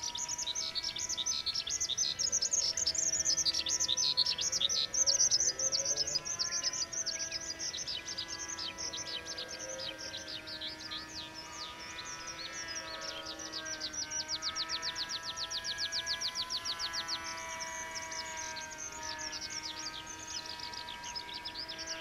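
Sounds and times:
electric motor whine: 0.0 - 22.0
songbirds chirping: 0.0 - 22.0.

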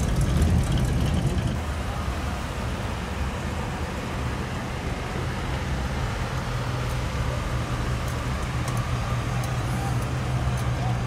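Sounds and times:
car engine rumbling past: 0.0 - 11.0.

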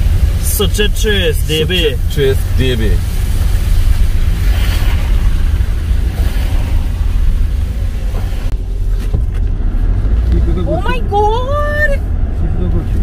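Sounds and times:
road hiss: 0.0 - 9.1
engine and tyre rumble: 0.0 - 13.0.

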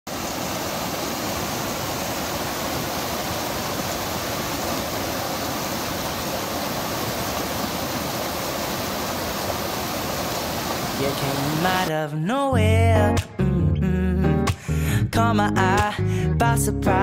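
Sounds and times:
creek rushing over rocks: 0.1 - 11.9.

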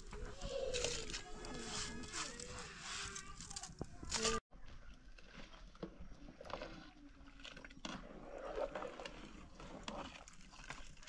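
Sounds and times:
water sloshing in a pot: 4.9 - 11.0.

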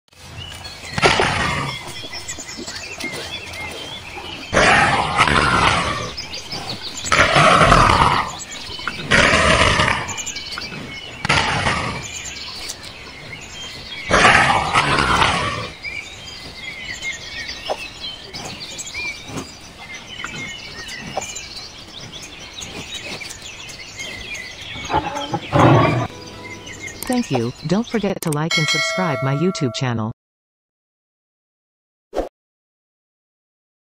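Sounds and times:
small birds chirping: 0.2 - 30.0
big cat snarling: 1.0 - 2.4, 3.0 - 15.9, 24.0 - 26.1.

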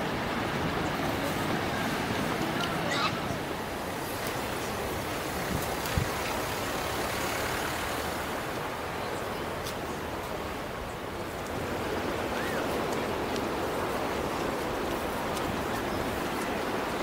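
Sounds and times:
steady rushing background noise: 0.0 - 17.0.

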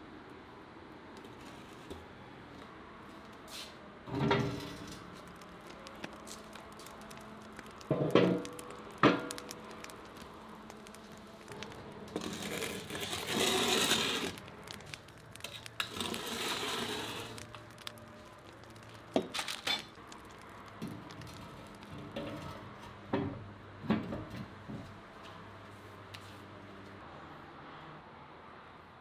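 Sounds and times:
rustling and scraping: 3.6 - 22.6.

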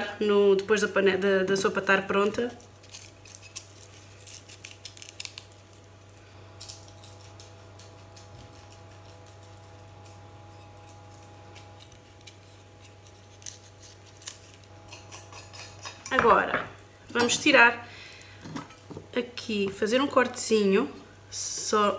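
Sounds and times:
faint steady hum: 0.0 - 21.9
knife scraping garlic skin: 1.6 - 16.2.

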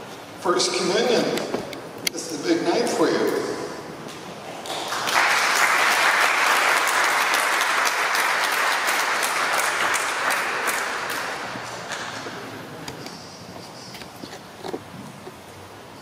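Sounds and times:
congregation applauding: 4.5 - 12.4.

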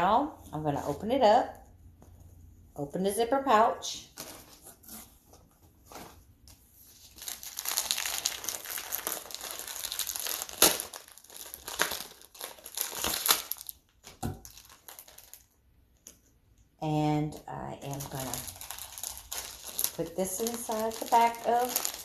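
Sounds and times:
plastic packaging crinkling: 6.8 - 16.3, 17.5 - 22.0.

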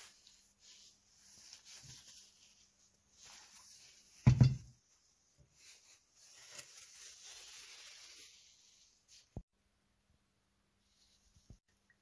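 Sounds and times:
handling scrapes: 0.0 - 9.5
heavy metal knock on workbench: 4.3 - 4.7.

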